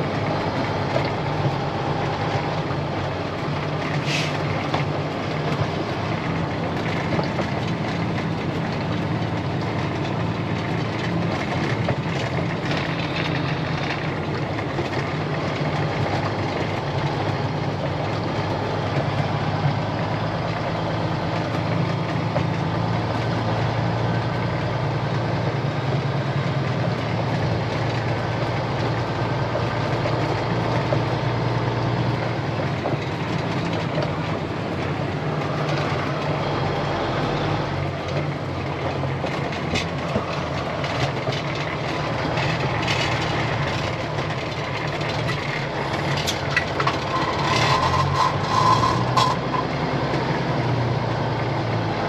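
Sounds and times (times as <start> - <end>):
cab rattling and knocking: 0.0 - 50.8
diesel truck engine running: 0.0 - 52.0.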